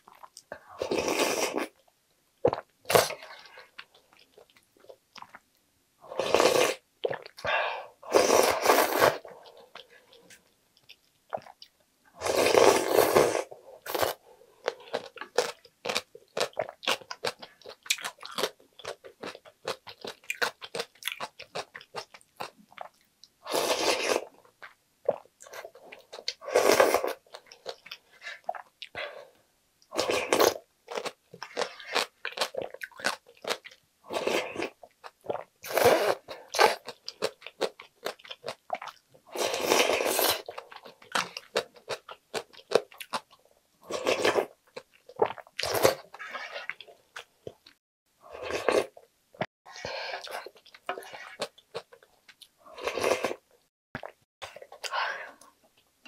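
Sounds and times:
slurping off a wooden spoon: 8.1 - 9.3, 45.3 - 46.9
crunching and chewing food: 8.3 - 29.0, 29.9 - 49.0.

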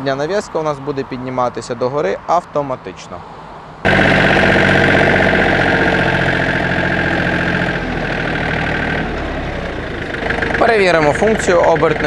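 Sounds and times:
high steady whine: 3.9 - 8.8
tractor diesel engine running: 3.9 - 12.0.

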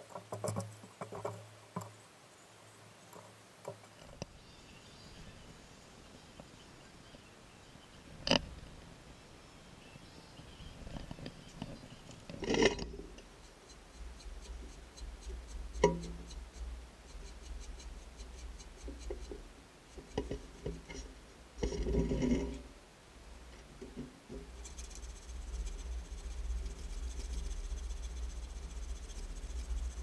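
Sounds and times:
low steady hum: 4.0 - 30.0
rubbing: 12.3 - 22.6, 23.8 - 30.0.

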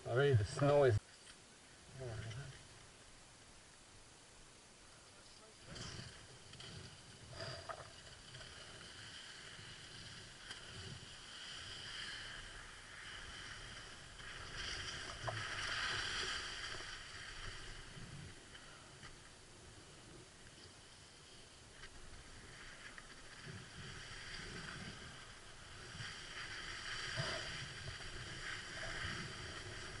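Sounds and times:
wind rumbling on microphone: 19.8 - 30.0.

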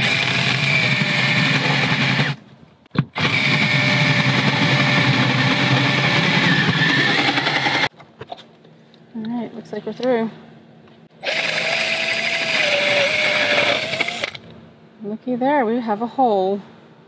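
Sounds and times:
cordless drill cutting with hole saw: 0.0 - 2.4, 3.2 - 7.9, 11.2 - 14.4.

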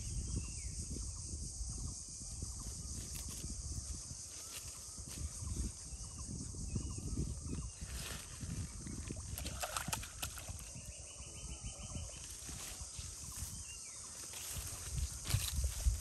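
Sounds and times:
fish splashing in water: 8.9 - 10.8.

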